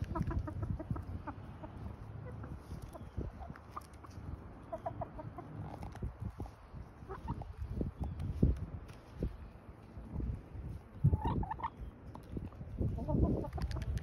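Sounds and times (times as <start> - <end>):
hens clucking softly: 0.0 - 8.0, 10.9 - 14.0
beaks pecking grain: 0.0 - 10.2.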